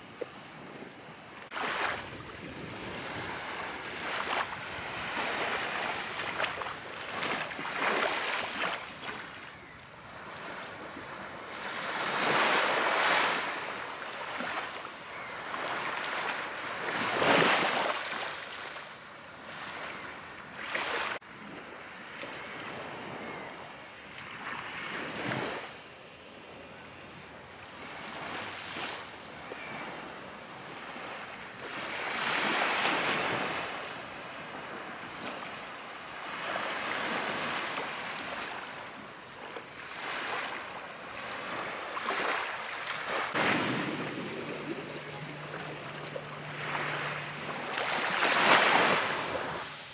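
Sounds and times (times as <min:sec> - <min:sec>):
small waves washing onto sand: 0:01.4 - 0:21.6, 0:30.8 - 0:49.9
wind blowing: 0:42.5 - 0:49.9.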